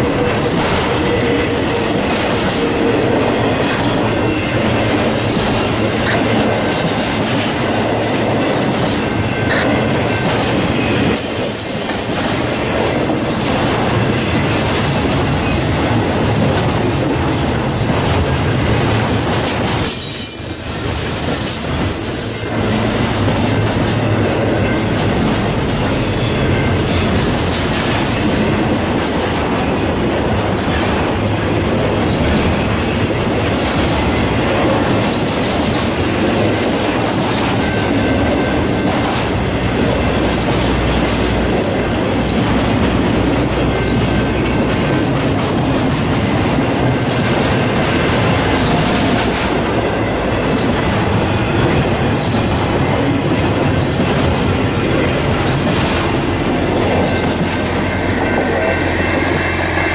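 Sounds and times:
train wheels running on rails: 0:00.0 - 0:59.9
high wheel squeals: 0:09.2 - 0:12.4, 0:19.0 - 0:29.8, 0:53.7 - 0:59.9.

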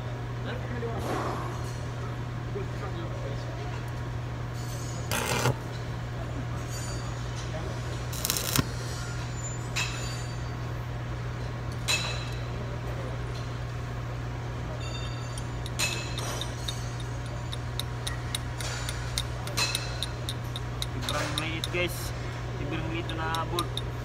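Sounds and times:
steady low hum: 0:01.8 - 0:24.0.

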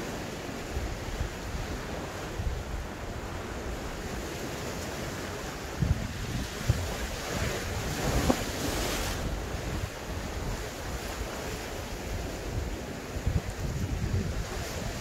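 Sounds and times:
sea surf on rocky shore: 0:00.0 - 0:15.0
strong wind buffeting microphone: 0:05.6 - 0:15.0.

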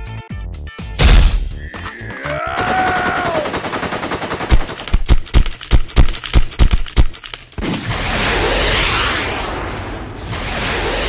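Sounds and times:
machine-gun rattle: 0:03.5 - 0:07.6.

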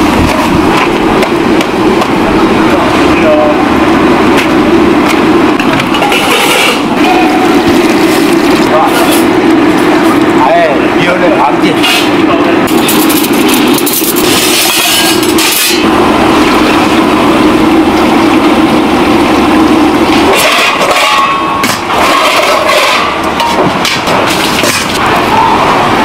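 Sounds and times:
loud steady drone: 0:00.0 - 0:26.0
steady low hum: 0:00.0 - 0:26.0
metal bowls clattering: 0:05.9 - 0:06.8.

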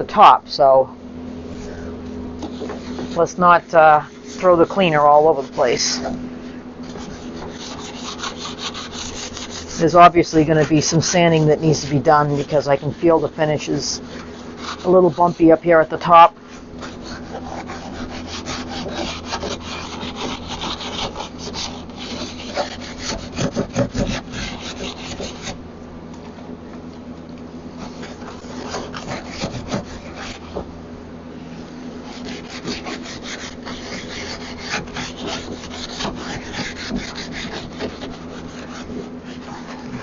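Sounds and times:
rag scrubbing wood: 0:02.4 - 0:06.2, 0:06.8 - 0:25.6, 0:27.7 - 0:30.8, 0:31.6 - 0:40.0.

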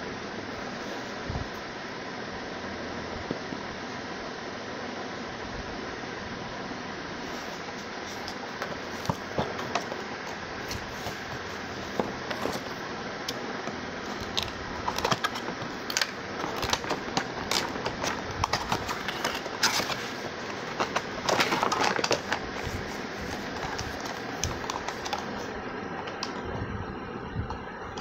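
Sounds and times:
cardboard and plastic rustling: 0:07.2 - 0:26.4.

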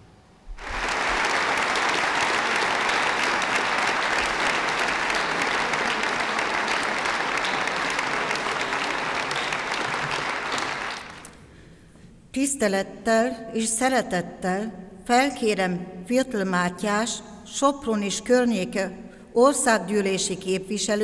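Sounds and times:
audience applauding: 0:00.5 - 0:11.4.

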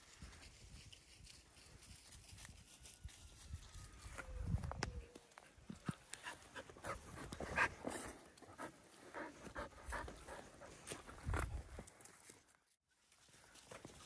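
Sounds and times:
dog panting: 0:06.2 - 0:11.2.

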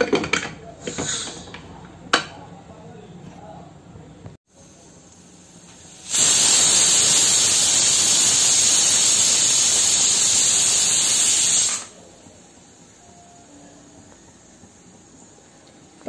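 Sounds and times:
pressure cooker steam hissing: 0:00.8 - 0:01.6, 0:04.5 - 0:16.0.

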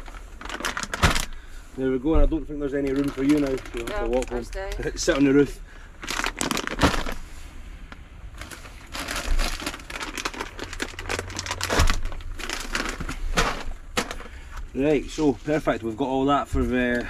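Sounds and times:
plastic bags crinkling: 0:00.0 - 0:01.5, 0:02.6 - 0:05.3, 0:06.0 - 0:07.3, 0:08.3 - 0:14.5.

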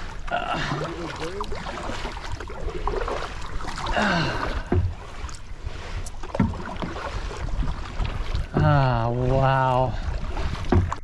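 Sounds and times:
paddle splashing in water: 0:00.0 - 0:11.0.

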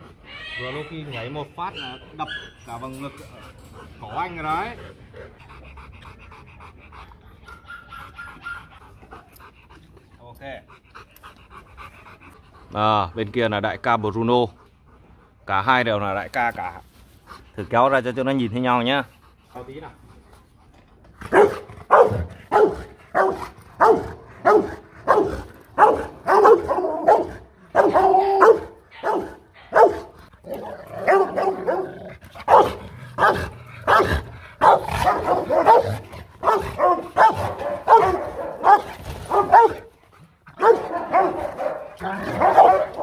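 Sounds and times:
dogs barking: 0:01.6 - 0:02.9, 0:21.3 - 0:39.9, 0:40.5 - 0:43.0.

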